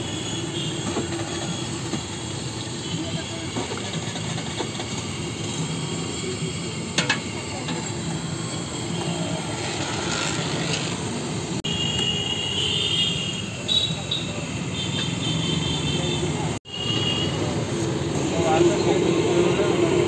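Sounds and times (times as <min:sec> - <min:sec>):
hot oil sizzling: 0:00.0 - 0:12.0
street traffic: 0:00.0 - 0:20.0.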